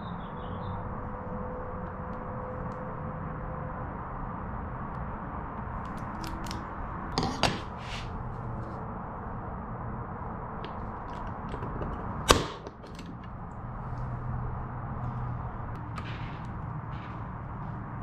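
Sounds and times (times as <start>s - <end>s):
steady background hum: 0.0s - 18.0s
center punch snapping on metal: 12.2s - 13.2s.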